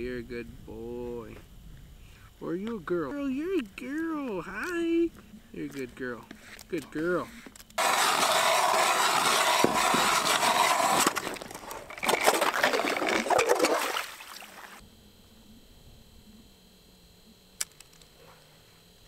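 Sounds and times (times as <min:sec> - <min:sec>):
ice auger grinding scrape: 0:07.8 - 0:14.8.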